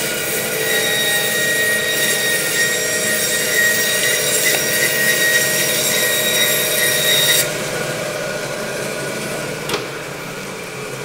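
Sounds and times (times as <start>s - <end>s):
band saw cutting bone: 0.0s - 7.7s.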